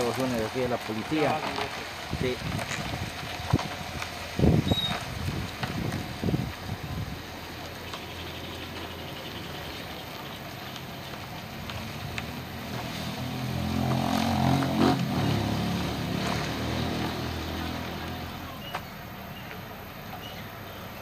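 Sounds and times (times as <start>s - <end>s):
vehicle engine driving past: 11.7s - 19.1s.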